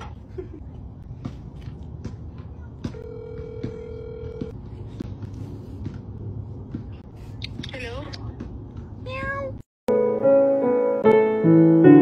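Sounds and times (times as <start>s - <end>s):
phone ringback tone: 3.0s - 4.5s.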